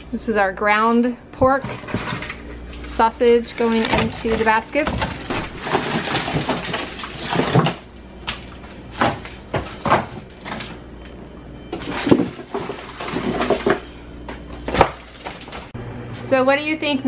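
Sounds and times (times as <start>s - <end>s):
frozen packs knocking on baskets: 3.5s - 10.8s.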